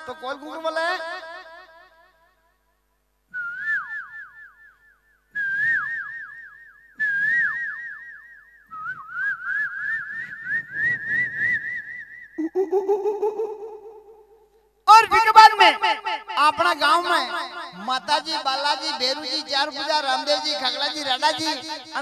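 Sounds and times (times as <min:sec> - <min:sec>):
man whistling bird call: 0:03.3 - 0:12.4.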